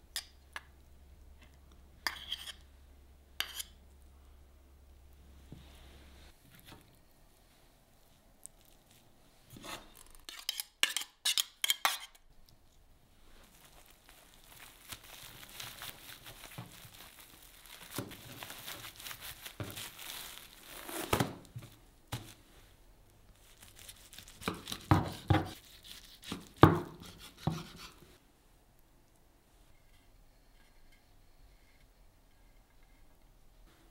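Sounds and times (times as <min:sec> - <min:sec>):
plastic wrap crinkling: 0:08.3 - 0:09.2, 0:13.2 - 0:22.4, 0:23.3 - 0:26.6.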